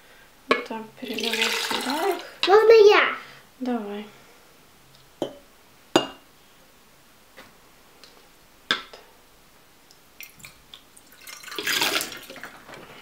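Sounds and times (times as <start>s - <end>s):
glassware clinking: 6.0s - 6.2s.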